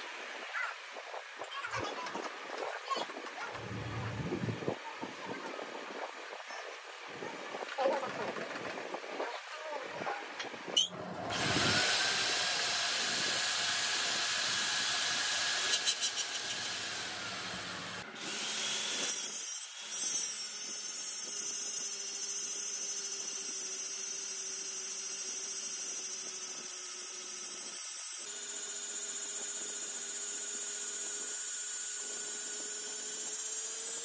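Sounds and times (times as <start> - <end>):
power tool motor: 10.7 - 34.0
machine humming and hissing: 10.9 - 19.2.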